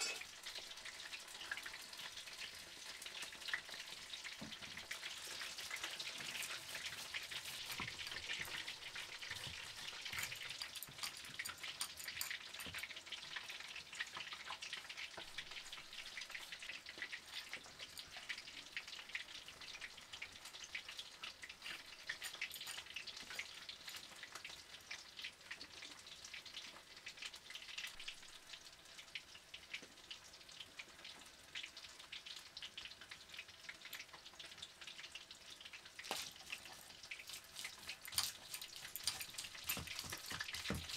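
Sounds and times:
stone roller crushing seeds: 36.0 - 40.9.

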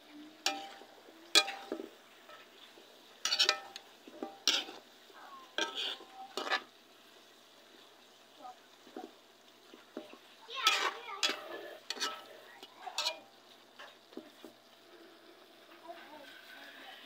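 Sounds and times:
faint sizzling: 0.0 - 17.0
metal spoon scraping a pan: 0.4 - 6.7, 8.8 - 14.6.

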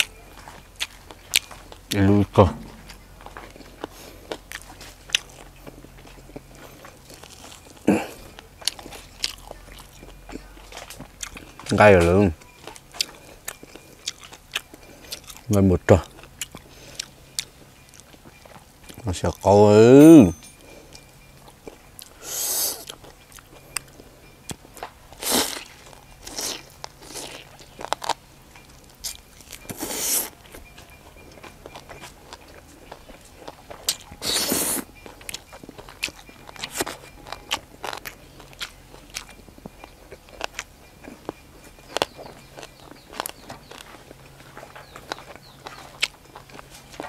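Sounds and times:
crunching and chewing vegetables: 0.0 - 47.0.

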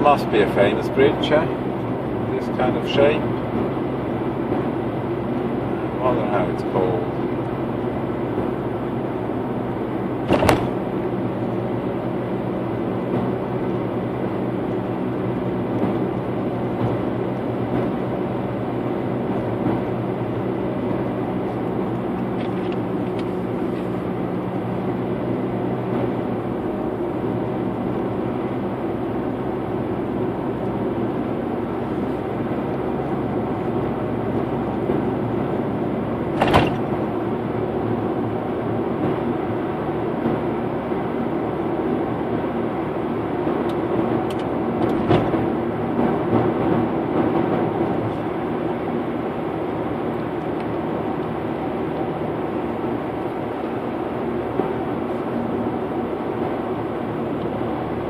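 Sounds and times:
road and engine noise inside car: 0.0 - 58.0
sharp knock: 10.3 - 10.8.

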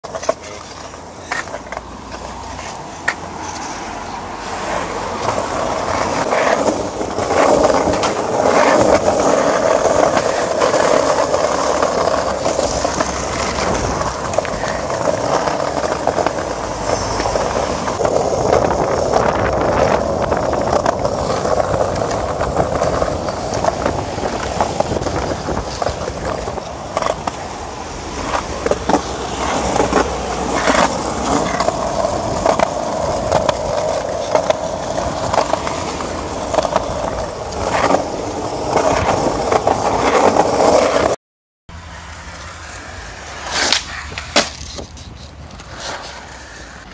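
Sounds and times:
skateboard wheels rolling on concrete: 0.0 - 46.9.

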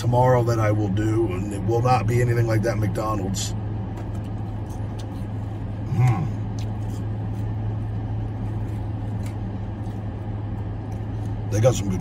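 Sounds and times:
car engine idling: 0.0 - 12.0
person chewing fries: 4.2 - 11.4.

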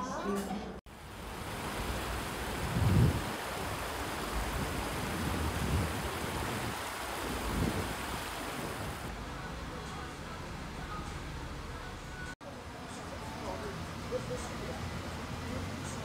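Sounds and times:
stream rushing over rocks: 0.9 - 9.1.

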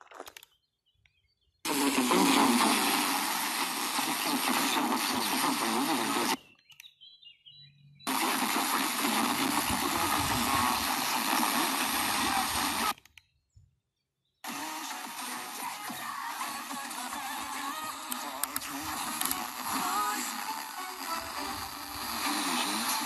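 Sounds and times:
fm radio hiss: 1.7 - 6.4, 8.1 - 13.0, 14.4 - 23.0
radio station audio: 1.7 - 6.4, 8.1 - 13.0, 14.4 - 23.0.

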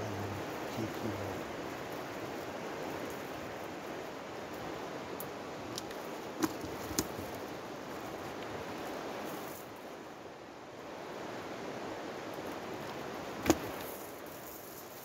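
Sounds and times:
rushing hiss: 13.4 - 15.0.

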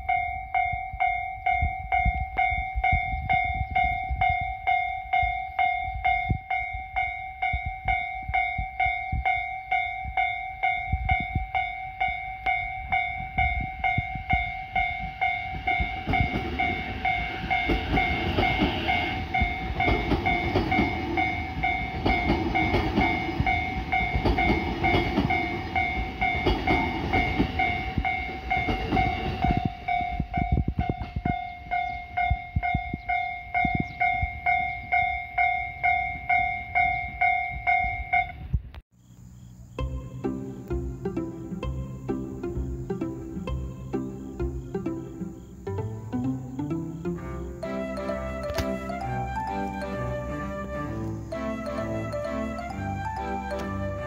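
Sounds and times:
level-crossing alarm ringing: 0.0 - 38.4, 39.8 - 54.0
train wheels rumbling on rails: 0.0 - 38.6.

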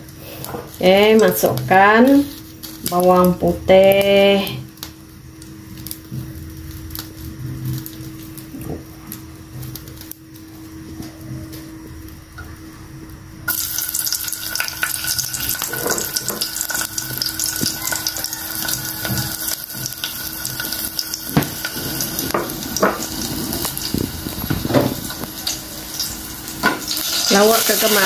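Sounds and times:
garlic sizzling in hot oil: 0.0 - 10.9, 13.5 - 28.0.

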